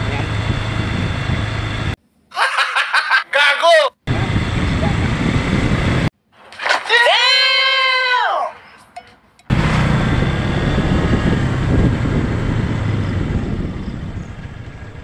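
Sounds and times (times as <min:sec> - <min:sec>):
motorcycle engine running: 0:00.0 - 0:02.0, 0:09.5 - 0:15.0
wind noise: 0:00.0 - 0:02.0, 0:04.1 - 0:06.1, 0:09.5 - 0:15.0.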